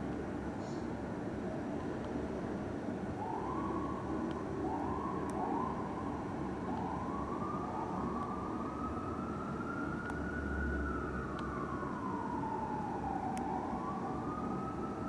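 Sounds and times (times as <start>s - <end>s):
fire engine siren rising: 3.1s - 15.0s.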